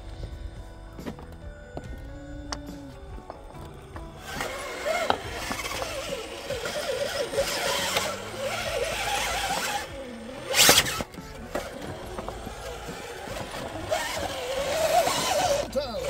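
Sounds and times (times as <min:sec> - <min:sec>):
electric motor and gears whining: 0:00.0 - 0:16.0
tyres scrabbling on stone: 0:03.2 - 0:16.0.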